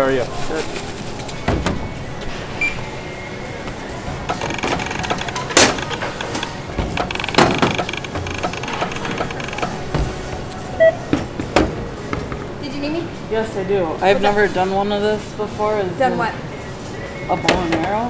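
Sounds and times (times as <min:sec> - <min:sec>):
store background noise: 0:00.0 - 0:18.0
gear knocking against counter: 0:04.3 - 0:09.8.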